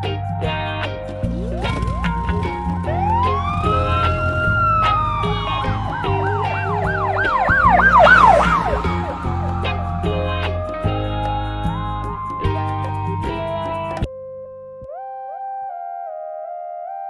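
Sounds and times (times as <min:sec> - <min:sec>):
background music with beat: 0:00.0 - 0:14.1
police siren wailing and yelping: 0:01.5 - 0:11.2.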